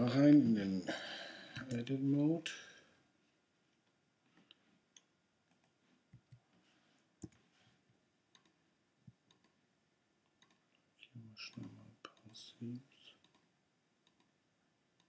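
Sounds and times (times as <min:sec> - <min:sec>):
computer mouse and keyboard clicks: 0:08.3 - 0:08.6, 0:09.3 - 0:09.6, 0:10.4 - 0:10.6.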